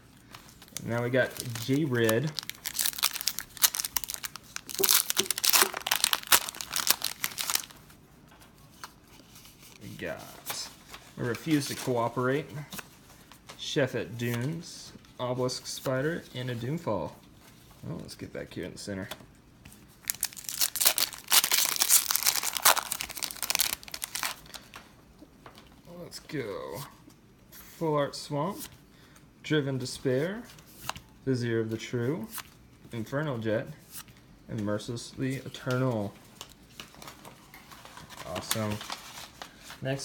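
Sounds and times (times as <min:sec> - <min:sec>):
foil pack crinkling and ripping: 0:00.4 - 0:07.8, 0:20.0 - 0:24.8, 0:37.8 - 0:39.8.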